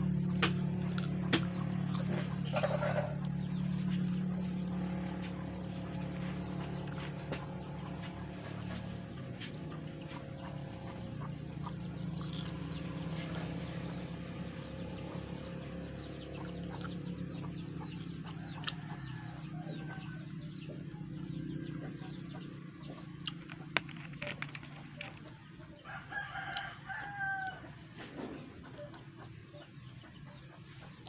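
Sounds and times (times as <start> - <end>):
chickens clucking: 0.0 - 31.0
steady low hum: 0.0 - 31.0
chewing mouth sounds: 9.4 - 14.1, 18.6 - 18.8, 23.2 - 25.4.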